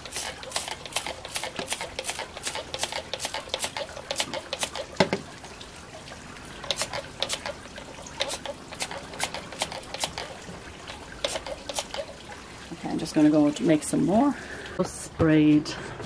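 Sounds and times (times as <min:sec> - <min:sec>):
spray bottle spritzing: 0:00.0 - 0:04.9, 0:06.7 - 0:07.6, 0:08.2 - 0:10.3, 0:11.2 - 0:12.1.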